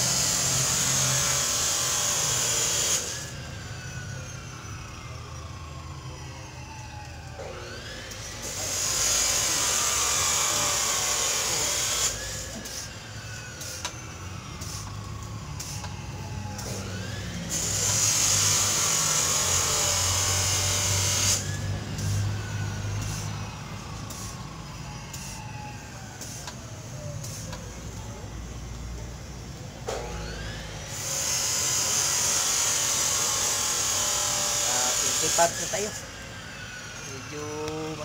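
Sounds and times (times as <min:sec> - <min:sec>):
air hissing: 0:08.4 - 0:15.9, 0:21.2 - 0:25.5.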